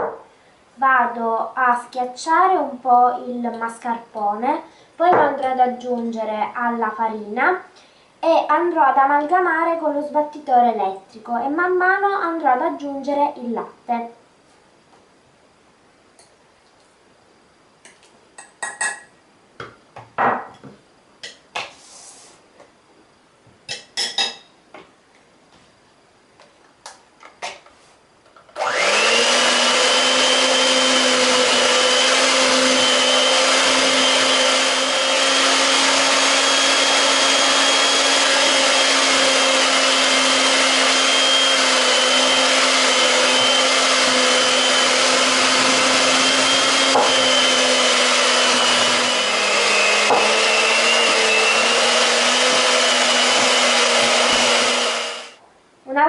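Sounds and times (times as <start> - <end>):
electric hand mixer running: 28.6 - 55.4.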